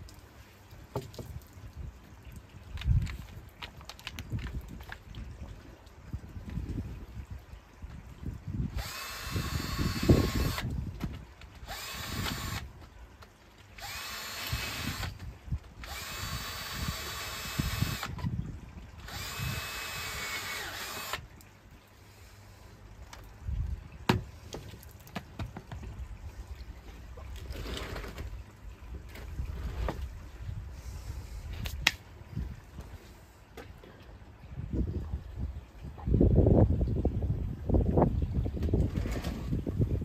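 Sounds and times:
power drill whining: 8.7 - 10.7, 11.7 - 12.6, 13.8 - 15.1, 15.8 - 18.2, 19.0 - 21.2.

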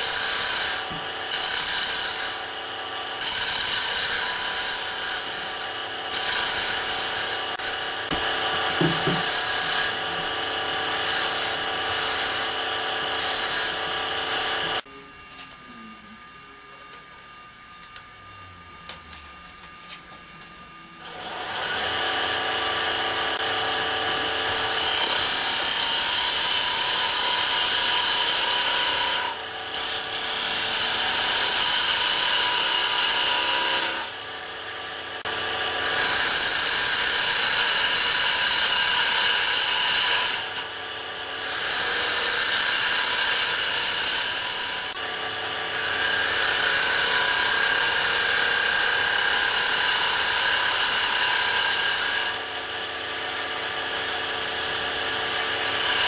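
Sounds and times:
wood lathe running: 0.0 - 14.9, 21.0 - 56.0
tool scraping wood on lathe: 8.8 - 10.3, 10.9 - 12.6.

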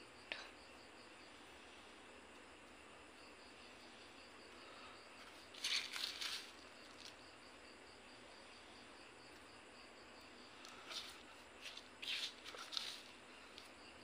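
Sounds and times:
insects chirring: 0.0 - 14.0
fingers rustling moss and soil: 5.2 - 7.2, 10.6 - 13.8.

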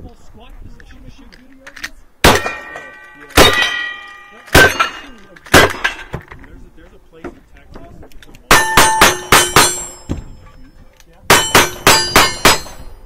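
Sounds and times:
steel targets clanging: 2.3 - 6.3, 8.5 - 13.0.

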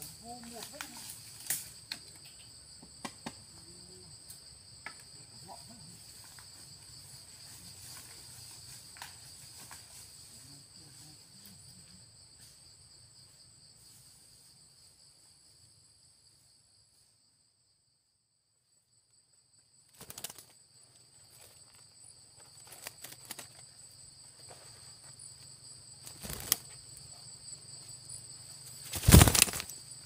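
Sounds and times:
insects buzzing: 0.0 - 30.0
twig snaps: 1.4 - 2.0.

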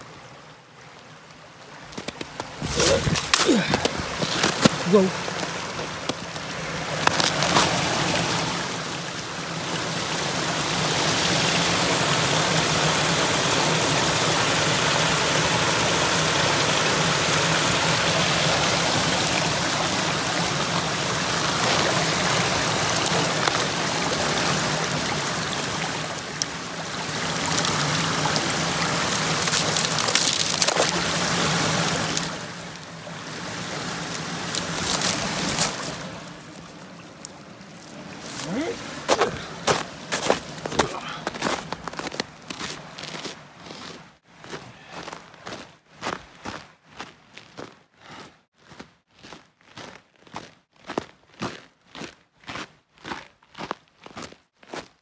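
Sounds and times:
creek running over rocks: 0.0 - 47.7
footsteps on snow and ice: 1.9 - 8.1, 28.9 - 31.1, 33.8 - 55.0.

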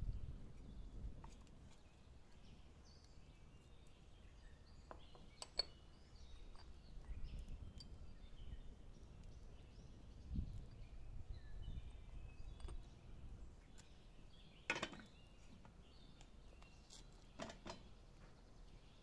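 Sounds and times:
faint bird chirps: 0.6 - 19.0.

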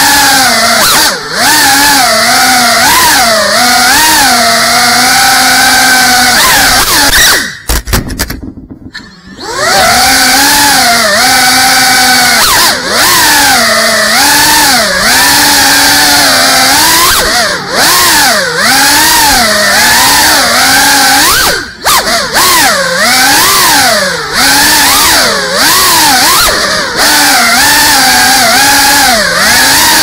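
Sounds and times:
quadcopter motors whining: 0.0 - 7.8, 8.9 - 30.0.

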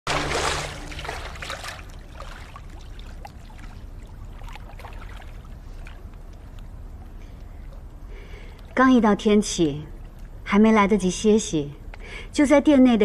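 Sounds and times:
loud water splashes: 0.0 - 5.9
water trickling and dripping: 0.1 - 10.5.

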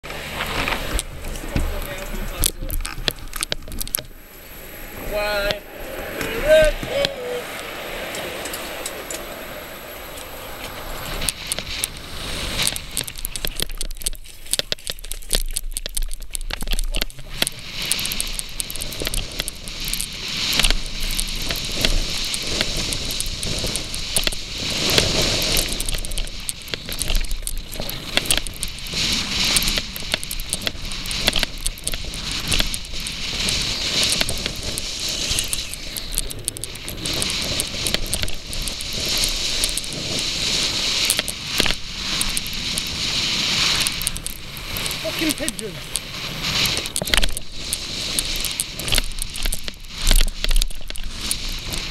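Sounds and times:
bike rattling and clicking: 0.0 - 4.2, 10.1 - 51.9
loose stones crunching: 0.0 - 4.2, 10.1 - 51.9
bike tyres rolling over gravel: 0.0 - 51.9.

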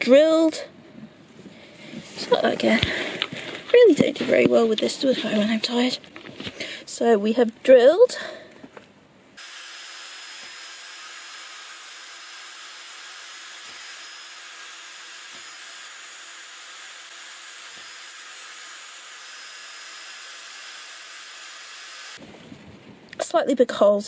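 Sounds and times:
cordless drill whirring: 9.4 - 22.2.

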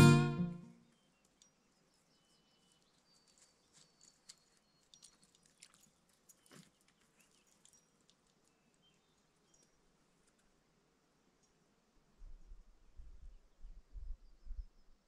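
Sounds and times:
brief high peeps: 0.0 - 0.6.

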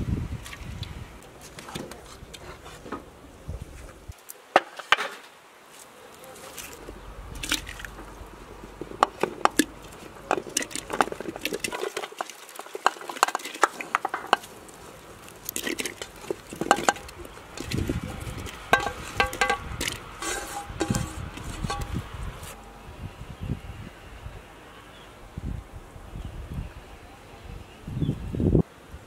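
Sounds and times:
vegetables dropping into pot: 8.9 - 14.5, 15.5 - 22.0
metal tray clinking on pot: 18.7 - 22.0.

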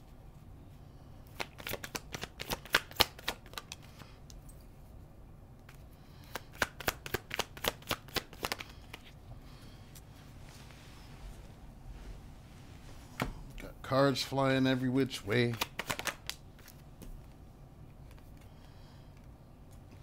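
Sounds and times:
cards being shuffled: 1.3 - 4.1, 5.6 - 9.2, 15.2 - 18.5.

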